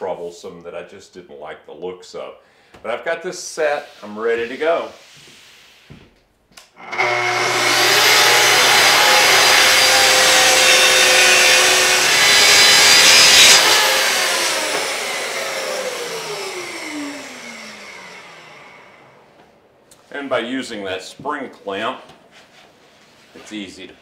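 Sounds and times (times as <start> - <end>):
track saw cutting plywood: 6.8 - 19.1
saw motor winding down: 6.8 - 19.2.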